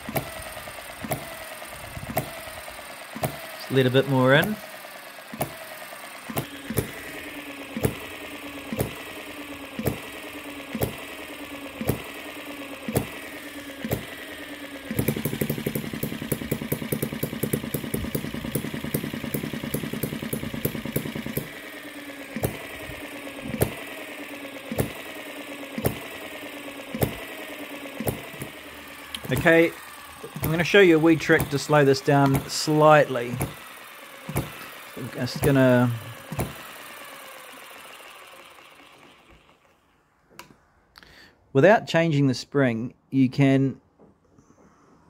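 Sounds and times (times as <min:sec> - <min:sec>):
engine clatter: 0:00.0 - 0:39.8
flywheel whirring: 0:00.0 - 0:39.9
model engine firing pops: 0:00.1 - 0:03.7, 0:04.4 - 0:21.6, 0:22.4 - 0:36.9.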